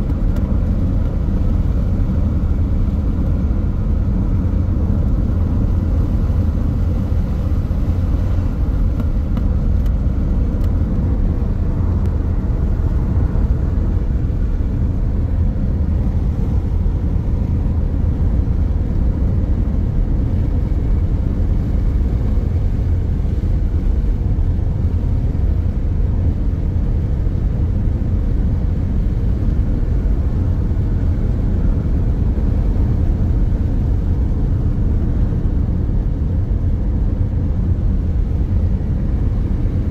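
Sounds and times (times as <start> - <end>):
car engine and road rumble: 0.0 - 39.9.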